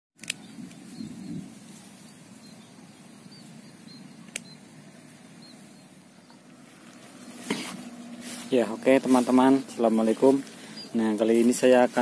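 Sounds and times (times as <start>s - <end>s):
sharp click: 0.2s - 0.8s, 4.3s - 4.6s
rustle: 0.2s - 12.0s
faint high chirps: 0.9s - 7.4s.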